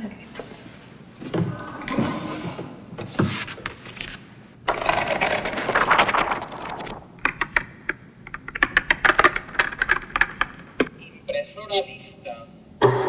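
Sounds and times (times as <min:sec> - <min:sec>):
page turning rustle: 0:03.2 - 0:07.1.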